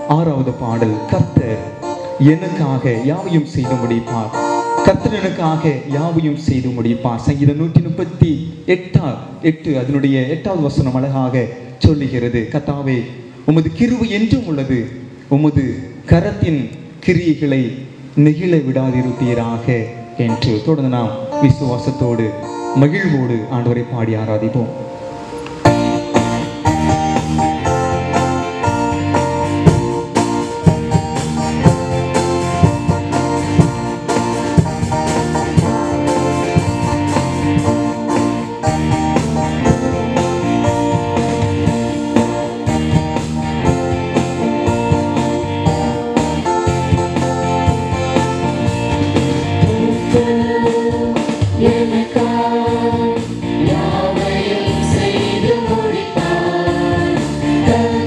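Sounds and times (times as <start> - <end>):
keyboard: 0.0 - 58.0
electric guitar: 24.8 - 58.0
drum kit: 25.3 - 58.0
people singing into microphones: 49.4 - 58.0.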